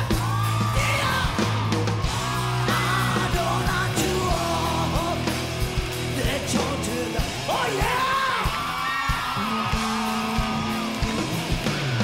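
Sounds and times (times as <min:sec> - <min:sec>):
punk rock band playing live: 0:00.0 - 0:12.0
person yelling vocals: 0:07.5 - 0:08.6.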